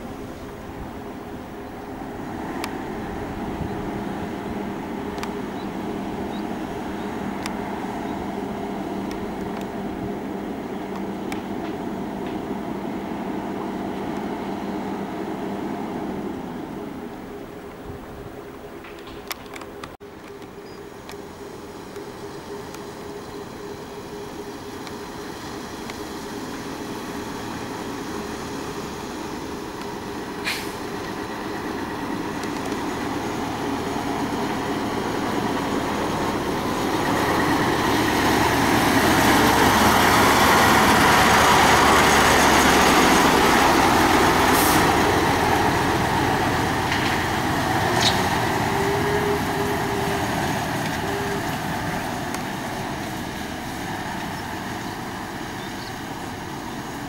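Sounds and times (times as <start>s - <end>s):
concrete mixer trucks passing: 0.0s - 19.3s, 20.1s - 57.0s
short sharp clicks or hisses: 30.4s - 30.9s.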